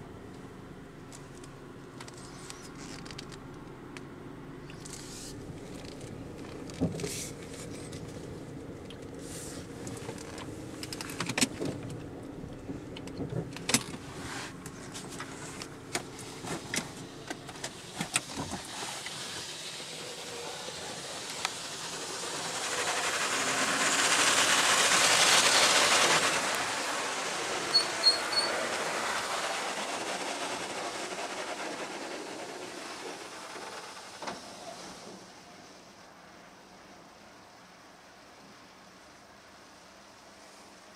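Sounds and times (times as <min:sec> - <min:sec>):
car wash motor hum: 0:00.0 - 0:40.9
water spray hissing: 0:17.6 - 0:35.1.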